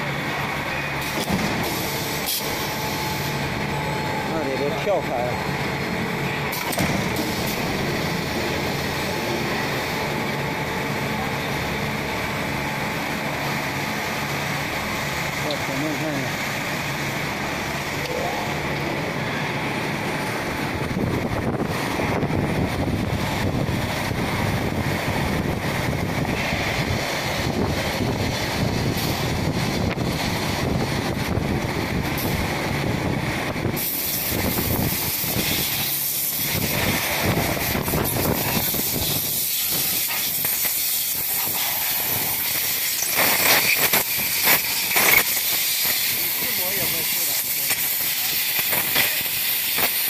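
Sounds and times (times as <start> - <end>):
moulding machine hissing: 33.8 - 50.0.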